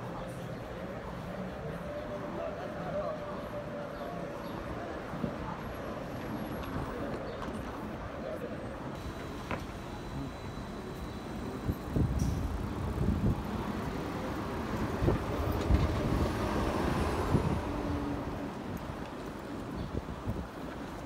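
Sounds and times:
vehicles passing by: 0.0s - 21.0s
wind rumbling on microphone: 11.6s - 21.0s.

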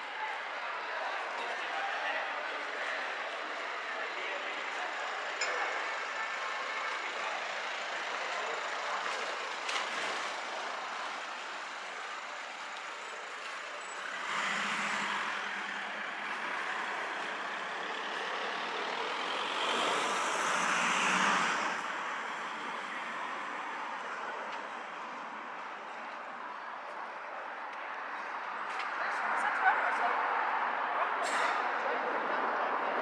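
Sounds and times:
road traffic noise: 0.0s - 33.0s
heavy vehicle passing: 13.2s - 24.0s.

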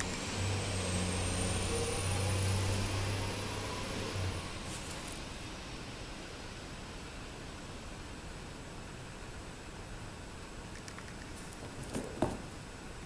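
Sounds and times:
thin high whine: 0.0s - 6.6s.

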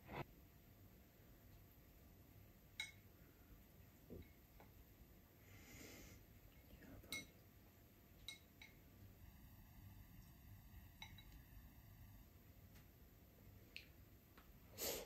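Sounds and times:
chopsticks tapping ceramic bowl: 2.8s - 3.0s, 7.1s - 7.3s, 8.2s - 8.8s.

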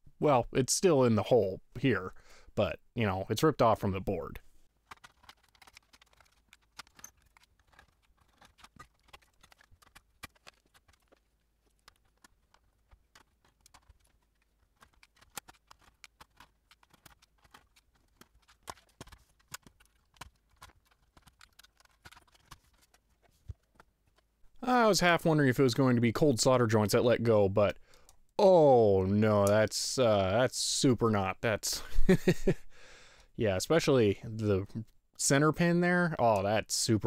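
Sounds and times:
screwdriver clicking on screws: 4.9s - 23.0s.

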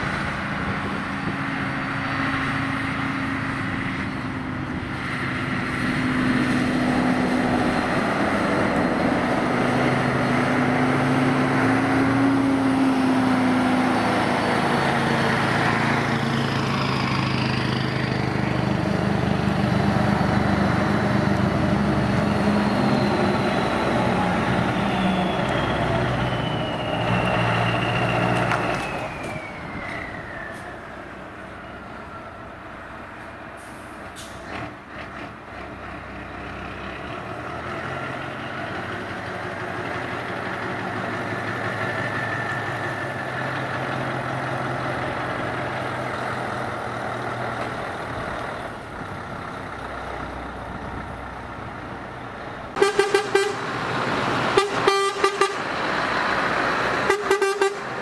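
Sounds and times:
truck engine driving by: 0.0s - 58.0s
high whine gliding down: 22.1s - 31.0s.

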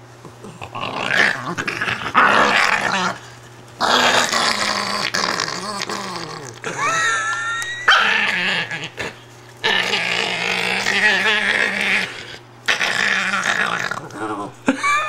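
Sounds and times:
dog growling: 0.2s - 7.2s, 7.9s - 14.8s
dog whining: 5.3s - 14.6s.

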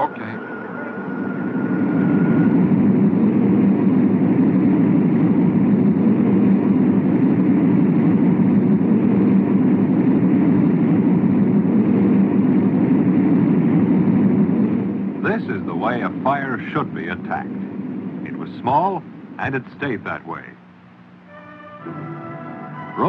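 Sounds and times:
diesel locomotive passing: 0.0s - 23.0s.

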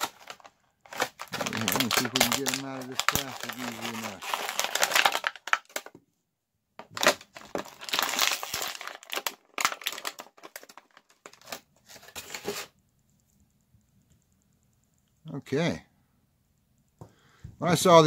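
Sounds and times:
plastic packaging crinkling: 0.0s - 6.0s, 6.8s - 12.7s.

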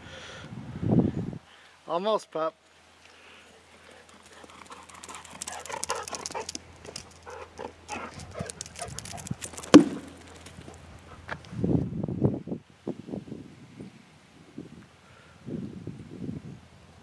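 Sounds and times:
dog paws on grass and gravel: 3.6s - 11.6s
sharp knock: 9.7s - 10.2s.

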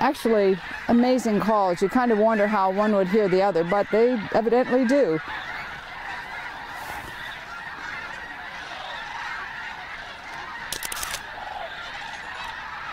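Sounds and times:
geese and cranes calling: 0.0s - 12.9s
sharp clicks: 10.7s - 11.2s.

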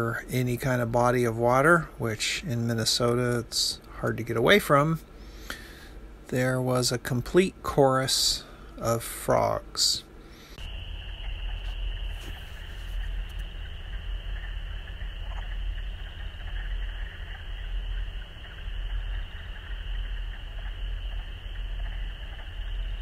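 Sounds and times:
steady low rumble: 0.0s - 23.0s
chorus of frogs calling: 10.6s - 23.0s.

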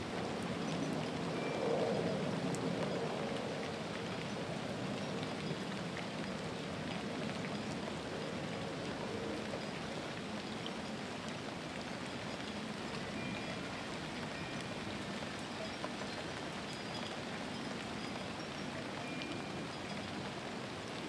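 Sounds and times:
steady rain hiss: 0.0s - 21.0s
raindrop ticks: 9.4s - 21.0s.

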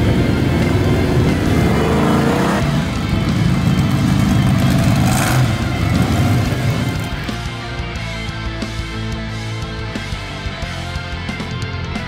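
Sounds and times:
truck engine revving: 0.0s - 7.8s.

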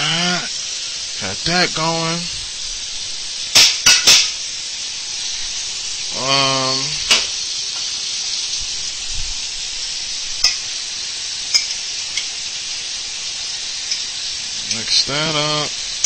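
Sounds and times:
food sizzling in pan: 0.0s - 16.0s
utensil clicking on pan: 10.4s - 10.7s, 11.5s - 12.4s, 13.8s - 14.9s.

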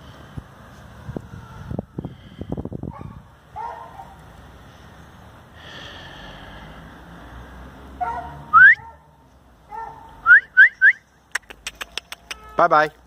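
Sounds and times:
person whistling for a dog: 8.5s - 8.8s, 10.2s - 11.0s.

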